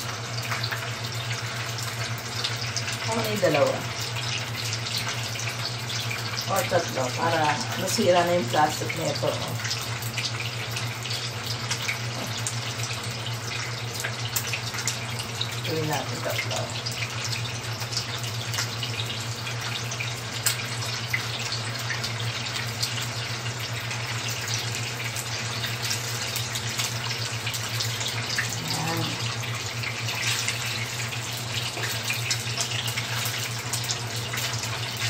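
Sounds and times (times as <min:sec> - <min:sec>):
sausages sizzling in oil: 0:00.0 - 0:35.0.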